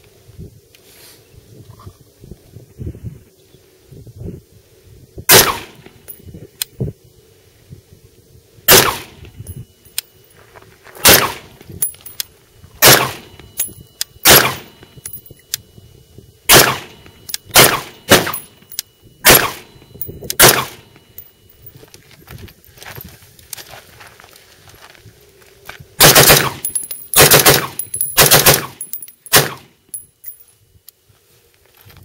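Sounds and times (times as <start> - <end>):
rifle shots with echo: 5.3 - 5.8, 8.7 - 9.2, 11.0 - 11.5, 12.8 - 13.4, 14.2 - 14.8, 16.5 - 18.5, 19.2 - 19.7, 20.4 - 20.9, 26.0 - 29.7.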